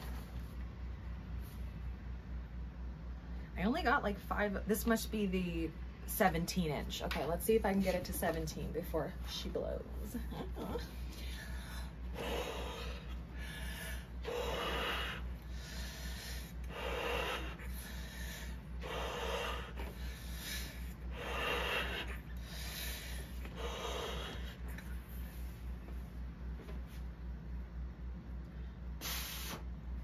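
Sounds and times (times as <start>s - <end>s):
person blowing up a balloon: 29.0s - 29.8s.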